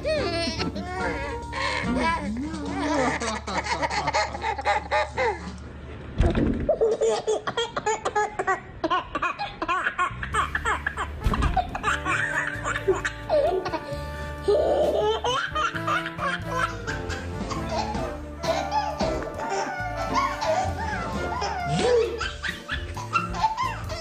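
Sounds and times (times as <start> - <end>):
background music: 0.0 - 4.0, 10.2 - 24.0
babies laughing: 0.0 - 5.6, 6.7 - 24.0.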